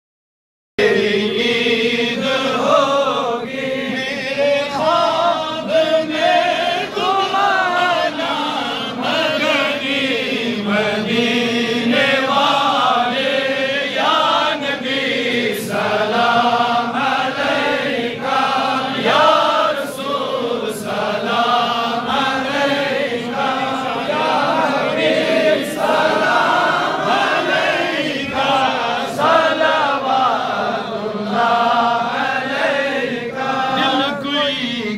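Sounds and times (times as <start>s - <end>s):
man chanting into a microphone: 0.8s - 12.7s, 33.6s - 34.9s
men chanting together: 0.8s - 34.9s.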